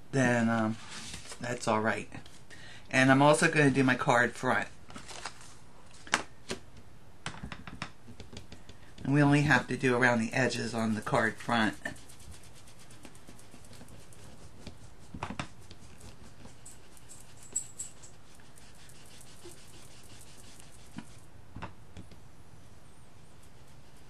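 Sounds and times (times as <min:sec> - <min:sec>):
sponge dabbing on card: 0:09.1 - 0:21.3, 0:23.2 - 0:24.0.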